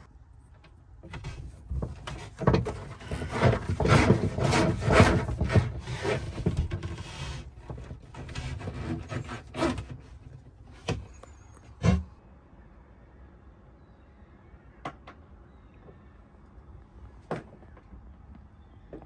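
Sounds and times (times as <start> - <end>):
scraping against wooden panels: 1.0 - 12.2.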